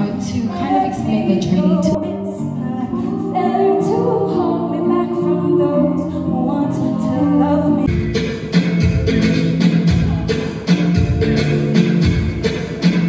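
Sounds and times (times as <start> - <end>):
music with sustained notes: 0.0 - 13.0
heavy bass: 7.4 - 13.0.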